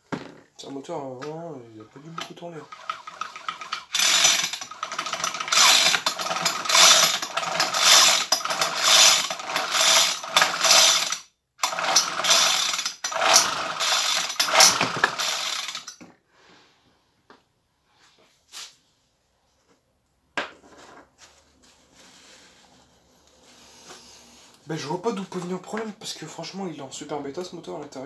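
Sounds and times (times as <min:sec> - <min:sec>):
rasping ratchet-like strokes: 0:02.1 - 0:16.0.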